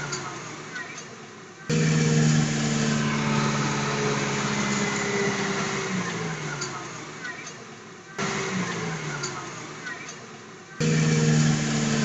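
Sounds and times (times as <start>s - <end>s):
toy truck motor drone: 1.7s - 7.4s, 10.8s - 12.0s.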